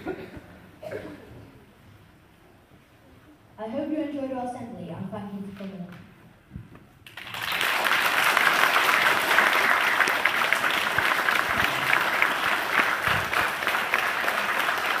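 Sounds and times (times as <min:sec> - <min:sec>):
audience applauding: 0:07.0 - 0:15.0.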